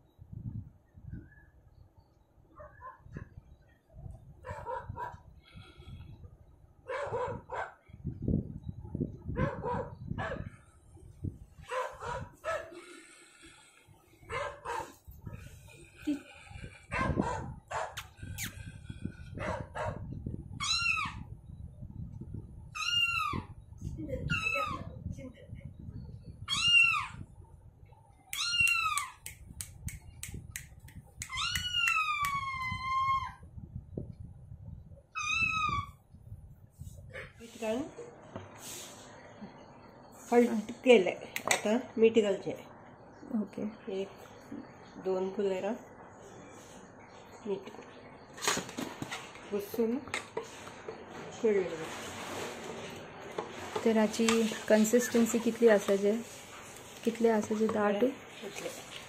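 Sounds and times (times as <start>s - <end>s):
dog barking: 2.6s - 3.0s, 4.4s - 5.2s, 6.9s - 7.8s, 9.4s - 10.5s, 11.7s - 12.8s, 14.3s - 15.0s, 16.9s - 18.0s, 19.4s - 20.1s.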